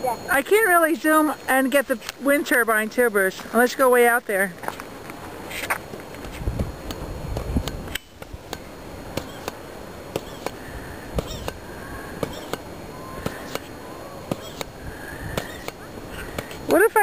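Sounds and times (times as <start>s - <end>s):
wind rumble on microphone: 6.2s - 8.5s.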